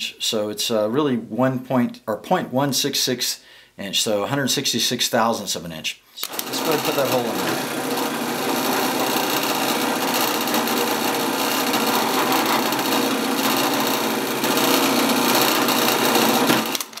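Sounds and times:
drill press boring into plastic: 6.2 - 17.0.

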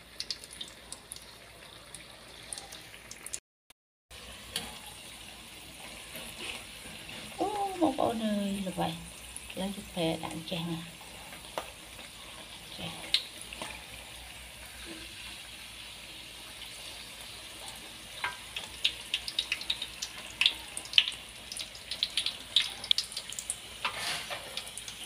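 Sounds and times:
food deep-frying in oil: 0.0 - 3.4, 4.1 - 25.0
oil popping and crackling: 0.0 - 3.4, 10.5 - 15.2, 17.2 - 25.0.

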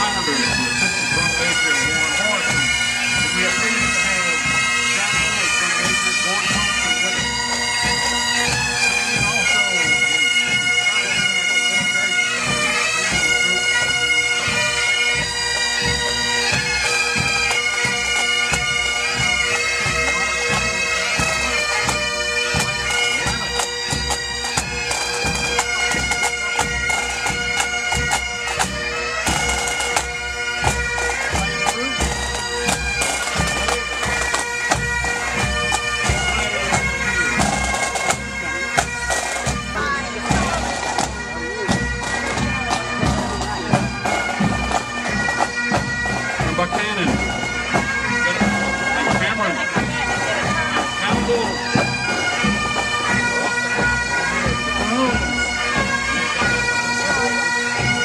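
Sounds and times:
bagpipe bands playing: 0.0 - 58.0.

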